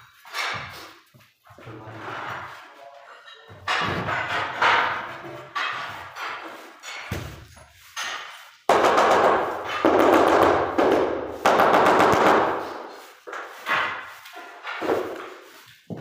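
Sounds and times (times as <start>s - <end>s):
stiff broom sweeping concrete: 12.6s - 16.0s.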